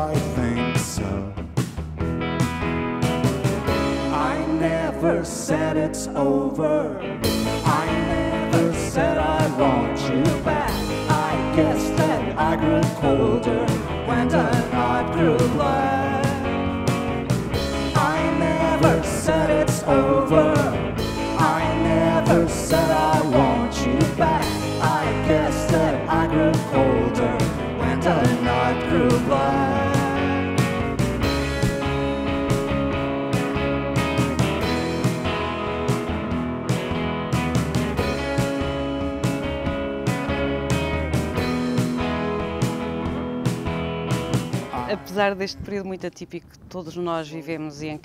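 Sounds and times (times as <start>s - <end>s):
person singing: 0.0s - 1.4s, 3.9s - 16.7s, 17.7s - 30.8s
drum kit beat: 0.0s - 4.6s, 7.2s - 46.1s
electric guitars: 0.0s - 46.7s.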